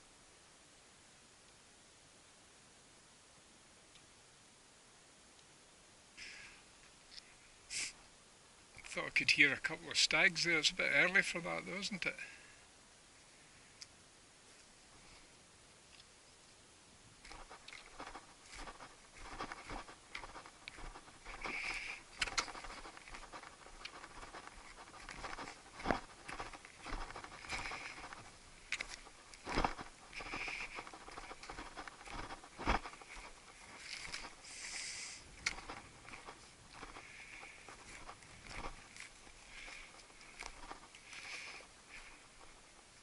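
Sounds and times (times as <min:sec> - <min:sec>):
boots on rocky ground: 0:17.2 - 0:43.0.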